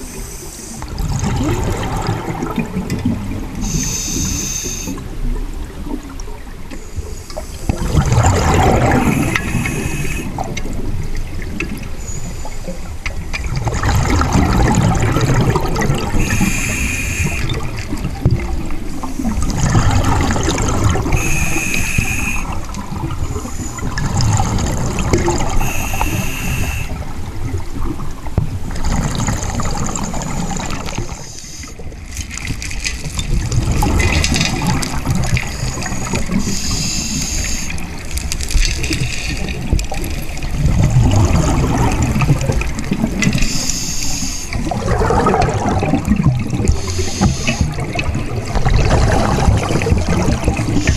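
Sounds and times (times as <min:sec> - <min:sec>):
underwater regulator bubbles gurgling: 0:00.0 - 0:50.9
short hiss: 0:16.2 - 0:17.5, 0:21.2 - 0:22.5, 0:25.6 - 0:26.9.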